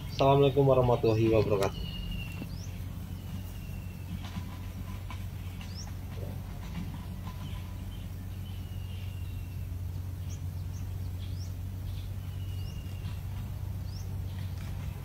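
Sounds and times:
small birds chirping: 0:00.0 - 0:15.0
steady low hum: 0:00.0 - 0:15.0
thin bird whistles: 0:01.6 - 0:04.7, 0:11.9 - 0:13.2.

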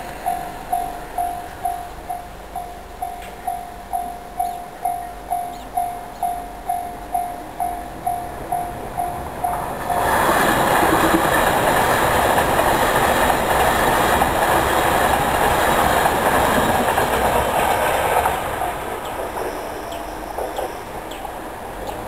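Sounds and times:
train passing with wheel clatter: 0:00.0 - 0:22.0
level crossing bell ringing: 0:00.1 - 0:10.2.

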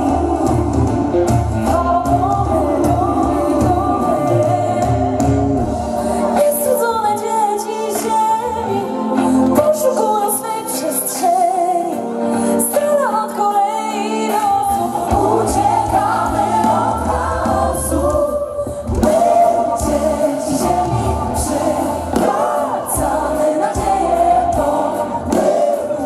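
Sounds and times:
bass: 0:00.0 - 0:07.4, 0:14.4 - 0:26.0
live pop band: 0:00.0 - 0:26.0
woman singing lead: 0:00.0 - 0:26.0
backing choir: 0:14.6 - 0:26.0.

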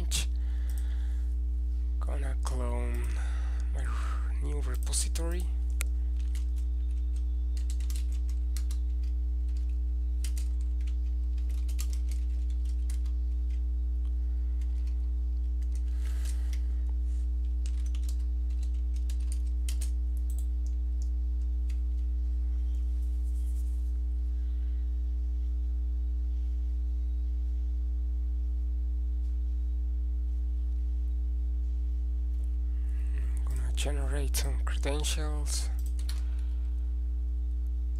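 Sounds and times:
low electrical hum: 0:00.0 - 0:37.9
keyboard typing: 0:06.1 - 0:13.6, 0:14.6 - 0:16.6, 0:17.4 - 0:22.1, 0:35.8 - 0:36.2.

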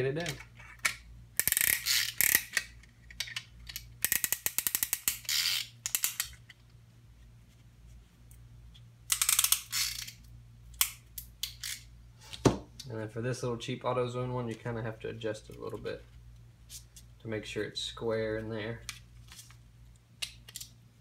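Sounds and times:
ratchet clicks: 0:01.4 - 0:02.7, 0:03.7 - 0:06.4, 0:09.1 - 0:10.2.

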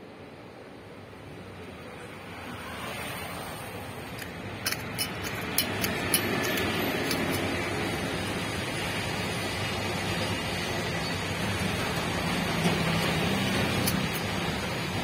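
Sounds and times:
steady rushing noise: 0:00.0 - 0:15.0
screw cap thread clicks: 0:04.1 - 0:07.6, 0:13.8 - 0:14.3.

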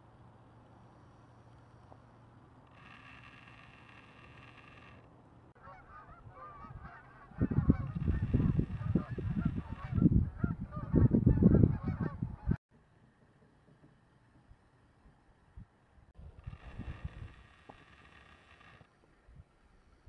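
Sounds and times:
geese honking: 0:05.6 - 0:12.6.

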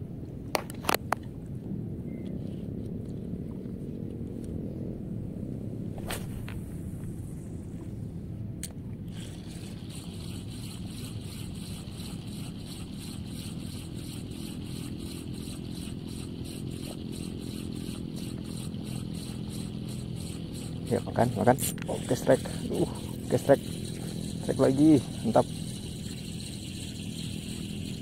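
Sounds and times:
reel bail click: 0:08.6 - 0:28.0
fishing reel ticking: 0:09.1 - 0:28.0.

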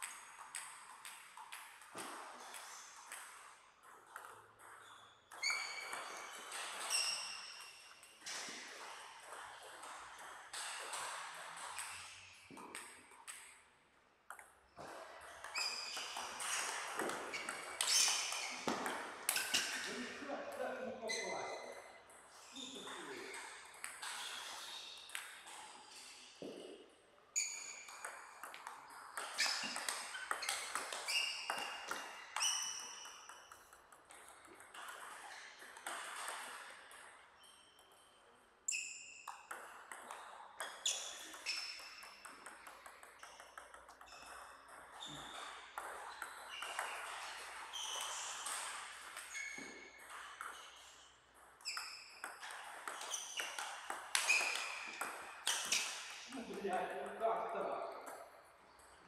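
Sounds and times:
ping pong ball bouncing on table: 0:00.0 - 0:13.6, 0:14.3 - 0:25.6, 0:27.4 - 0:37.2, 0:38.7 - 0:58.9
ping pong ball hitting rackets: 0:00.0 - 0:38.1, 0:38.7 - 0:59.0.

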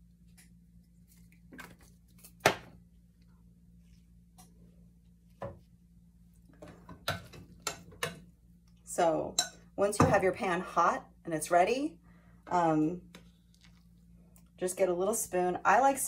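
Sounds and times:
kitchen items clicking and knocking: 0:06.6 - 0:08.3.

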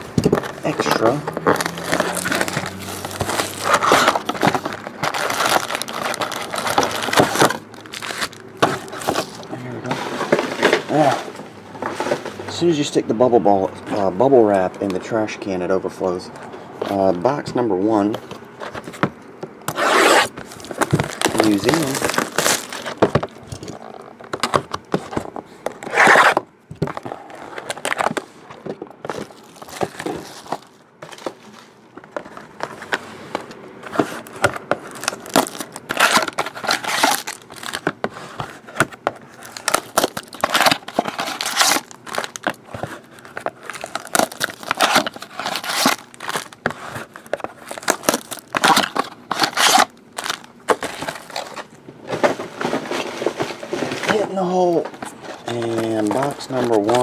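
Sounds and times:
wrappers crinkling and tearing: 0:00.4 - 0:09.9, 0:19.8 - 0:24.5, 0:27.0 - 0:28.3, 0:29.1 - 0:31.8, 0:34.0 - 0:57.0.

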